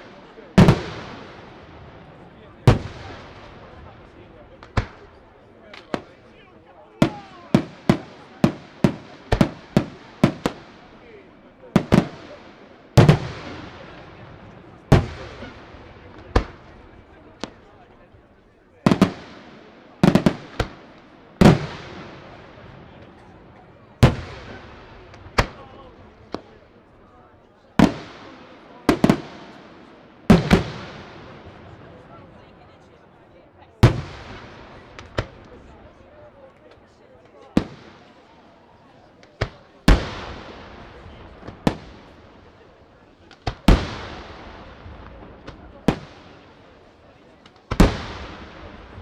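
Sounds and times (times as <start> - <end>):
firework shells bursting with echo: 39.2 - 42.6.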